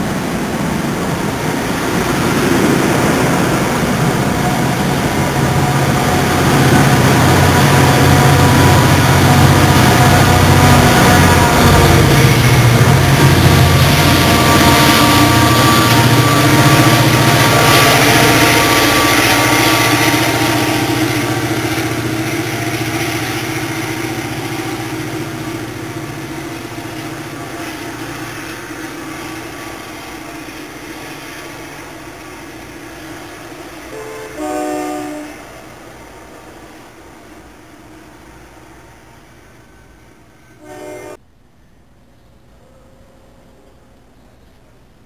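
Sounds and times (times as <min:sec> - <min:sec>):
diesel train pulling away: 0:00.0 - 0:45.0
distant train horn blast: 0:03.2 - 0:32.2, 0:33.0 - 0:35.6, 0:40.6 - 0:41.2.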